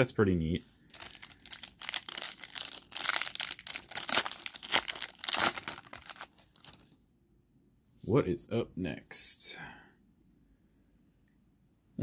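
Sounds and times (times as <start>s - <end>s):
foil wrapper crinkling: 0.9s - 6.9s.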